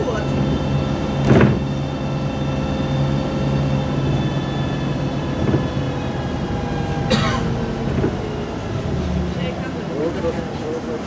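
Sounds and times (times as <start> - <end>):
bus engine whine: 0.0 - 11.0.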